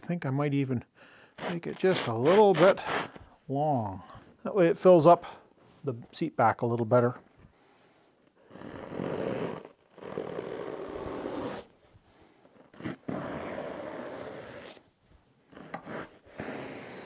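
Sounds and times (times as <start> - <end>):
knife sawing through foam: 1.4 - 3.2, 8.5 - 11.7, 15.6 - 17.0.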